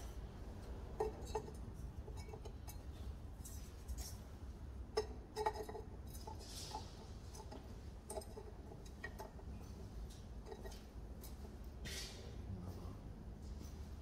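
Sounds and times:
metal pipe scrape: 0:05.3 - 0:09.4
metal pipe clicks and knocks: 0:07.3 - 0:11.5.

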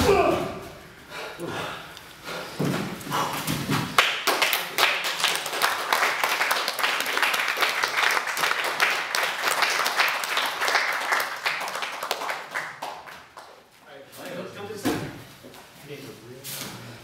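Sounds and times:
spectators clapping: 0:04.0 - 0:13.7.

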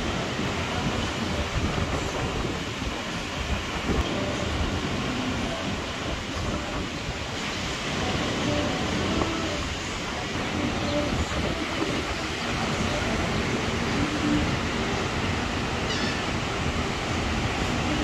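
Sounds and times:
surf: 0:00.0 - 0:18.0
wind: 0:00.0 - 0:18.0
gull call: 0:15.8 - 0:16.4.

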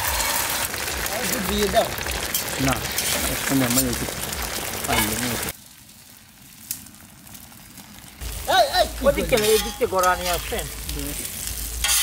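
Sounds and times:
eggs sizzling: 0:00.0 - 0:12.0
metal spatulas scraping and clinking: 0:03.0 - 0:03.8, 0:09.2 - 0:10.6, 0:11.8 - 0:12.0.

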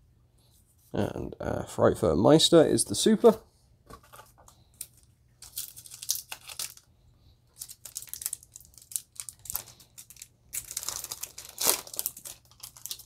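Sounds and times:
foil wrapper tearing and crinkling: 0:05.4 - 0:06.9, 0:07.6 - 0:13.0.

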